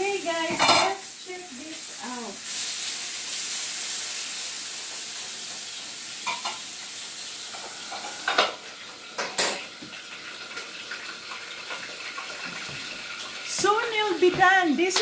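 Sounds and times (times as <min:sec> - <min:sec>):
meat sizzling in a pan: 0:00.0 - 0:15.0
metal clanks of pan and lid: 0:00.5 - 0:01.0, 0:06.2 - 0:06.6, 0:07.6 - 0:08.6, 0:09.2 - 0:09.7.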